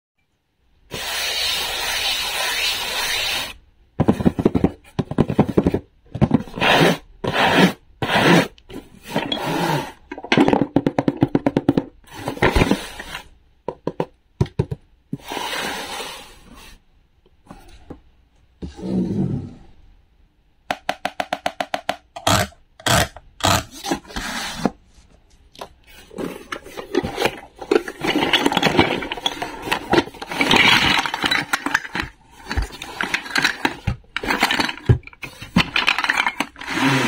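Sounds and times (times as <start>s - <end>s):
cardboard scraping rub: 6.4s - 10.0s, 23.6s - 25.2s.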